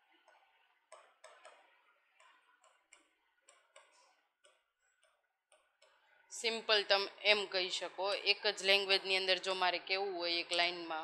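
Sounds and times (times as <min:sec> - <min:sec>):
writing on a board: 0:00.0 - 0:06.3.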